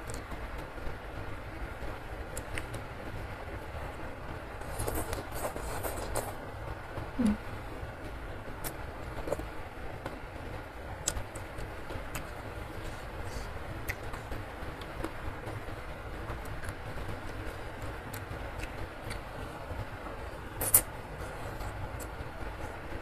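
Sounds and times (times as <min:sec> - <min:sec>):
heavy rain: 0:00.0 - 0:23.0
eating sounds: 0:20.6 - 0:22.2.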